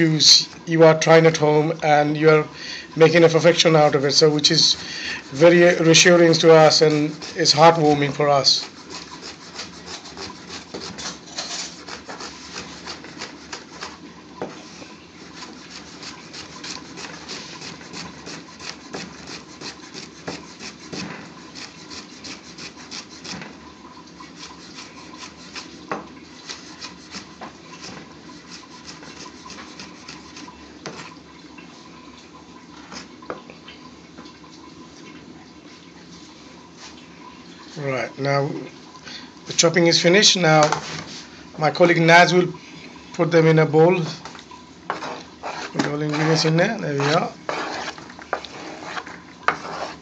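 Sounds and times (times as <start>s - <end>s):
blade rasping through onion: 4.5s - 14.0s, 15.3s - 23.4s, 24.2s - 30.5s, 44.9s - 50.0s.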